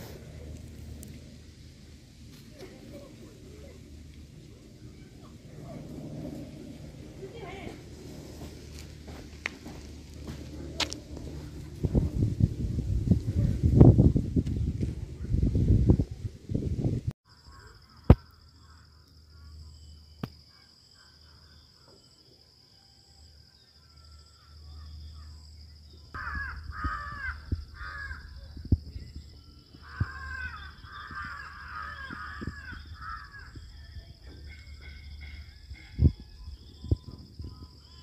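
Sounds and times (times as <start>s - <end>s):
low rumble: 0.0s - 17.2s
harsh bird caws: 26.2s - 28.6s, 29.8s - 33.7s.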